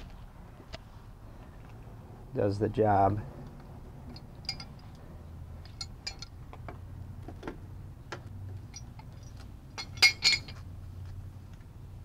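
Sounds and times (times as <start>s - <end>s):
metallic clicks and clinks: 4.0s - 6.4s, 8.6s - 10.7s.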